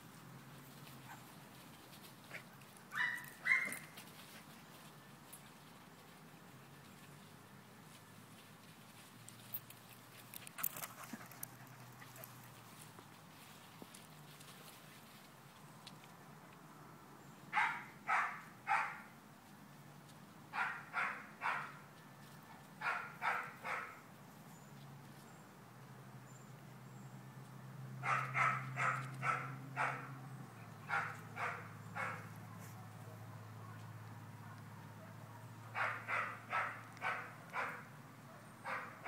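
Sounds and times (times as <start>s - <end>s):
dog barking: 3.0s - 3.8s, 17.6s - 19.1s, 20.6s - 21.8s, 22.8s - 24.0s, 28.0s - 30.2s, 30.9s - 32.3s, 34.4s - 39.0s.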